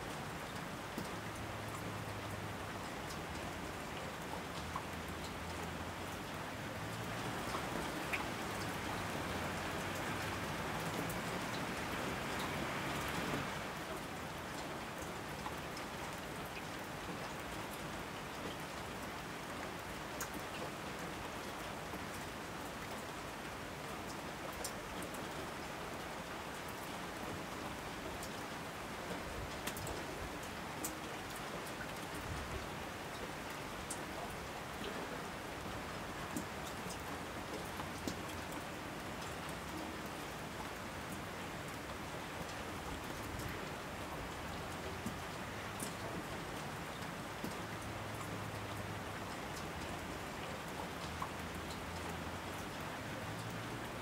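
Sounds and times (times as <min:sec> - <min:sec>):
steady rain falling: 0:00.0 - 0:54.0
raindrops ticking: 0:44.3 - 0:53.7.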